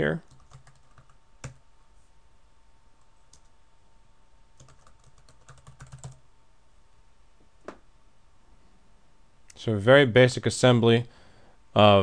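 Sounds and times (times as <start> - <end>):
faint keyboard typing: 0.2 - 1.6, 3.0 - 3.6, 4.6 - 6.2.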